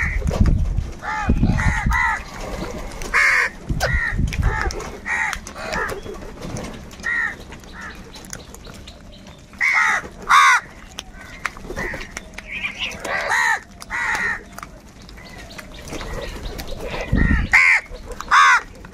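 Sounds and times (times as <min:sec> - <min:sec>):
crows cawing: 0:01.0 - 0:06.0, 0:07.0 - 0:08.0, 0:09.6 - 0:14.5, 0:16.9 - 0:18.8.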